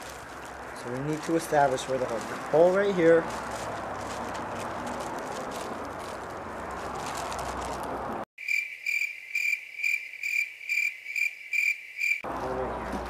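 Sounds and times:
outdoor noise: 0.0s - 13.0s
cricket chirping: 8.4s - 12.3s.

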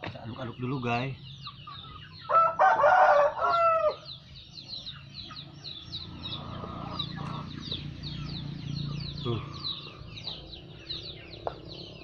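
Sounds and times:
small birds chirping: 0.0s - 12.0s
rooster crowing: 2.3s - 4.1s.

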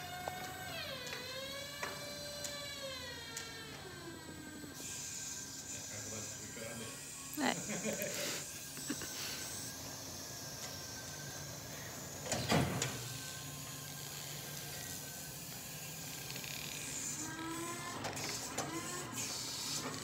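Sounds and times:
forklift motor and hydraulics whining: 0.0s - 20.0s.

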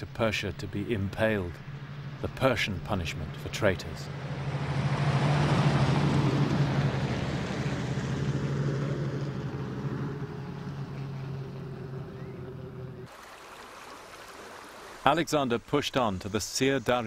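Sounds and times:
vehicle engine humming: 0.0s - 13.1s.

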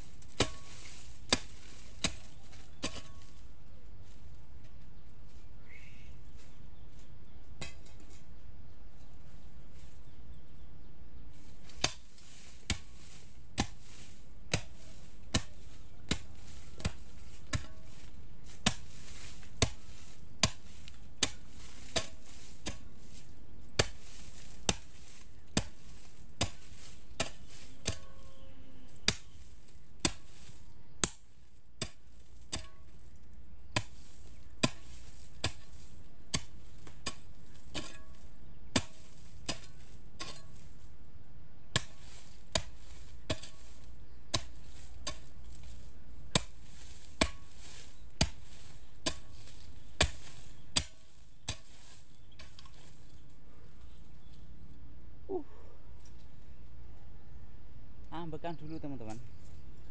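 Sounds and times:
hoe chopping into soil: 0.0s - 4.2s, 11.3s - 40.9s, 41.7s - 53.3s.

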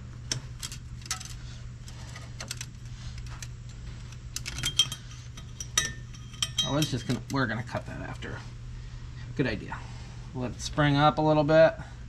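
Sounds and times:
steady low hum: 0.0s - 12.0s
light metallic clicks and clinks: 4.3s - 7.9s.

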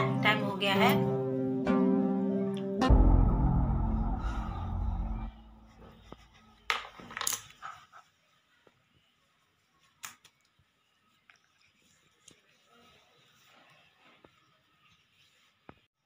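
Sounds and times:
background music: 0.0s - 6.7s.

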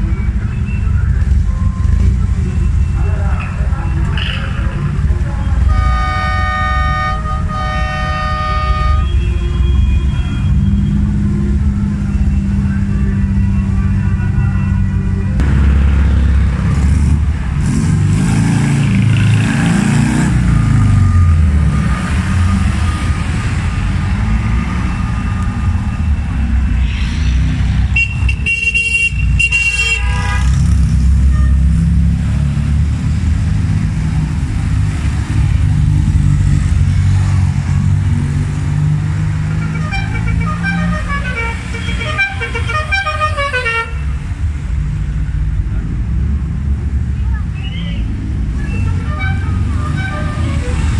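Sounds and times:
car horn: 5.6s - 11.0s, 27.9s - 31.8s, 39.6s - 44.2s, 48.6s - 50.9s
short high horn toots: 5.7s - 10.4s.

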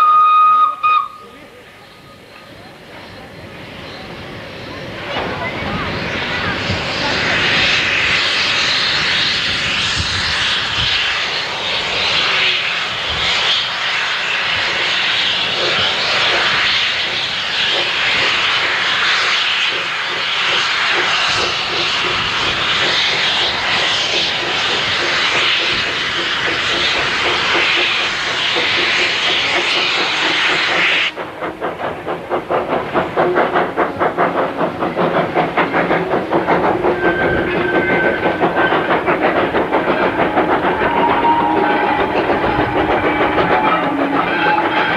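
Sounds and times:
steam locomotive hissing steam: 0.0s - 44.9s
locomotive exhaust chuffs: 12.0s - 44.9s.

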